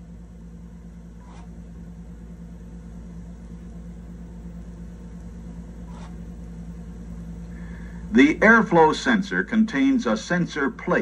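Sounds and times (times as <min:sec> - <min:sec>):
electrical hum: 0:00.0 - 0:11.0
tape hiss: 0:06.4 - 0:11.0.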